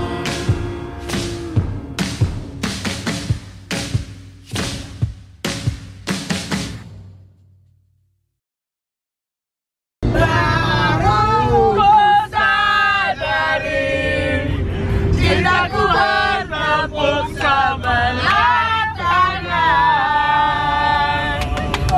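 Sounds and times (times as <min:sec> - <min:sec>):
engine and road rumble: 0:00.0 - 0:08.1, 0:10.0 - 0:21.9
people singing together: 0:10.0 - 0:21.9.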